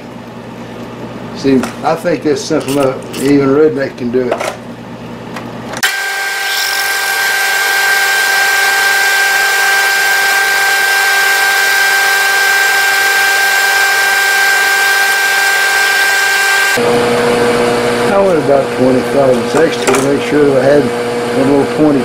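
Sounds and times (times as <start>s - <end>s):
milling machine drilling metal: 5.8s - 16.8s.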